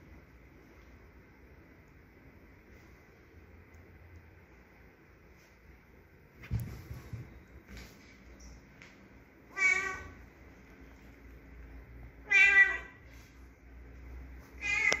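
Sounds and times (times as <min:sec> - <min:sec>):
cat meowing: 0:09.5 - 0:10.2, 0:12.2 - 0:13.0, 0:14.6 - 0:15.0.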